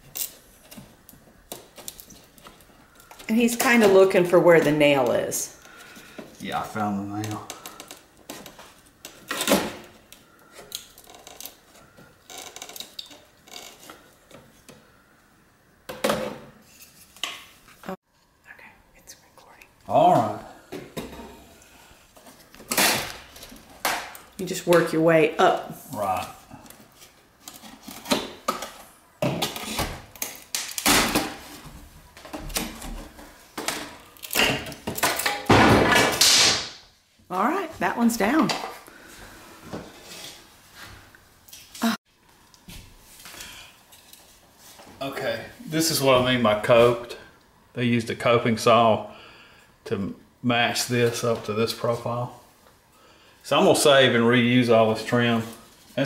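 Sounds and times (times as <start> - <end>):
wood trim creaking and cracking: 5.0 - 14.7.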